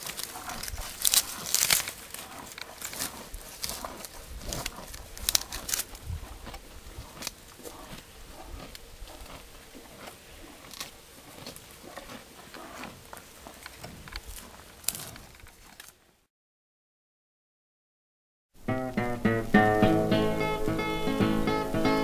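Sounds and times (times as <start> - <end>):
cow chewing: 0.0 - 16.0.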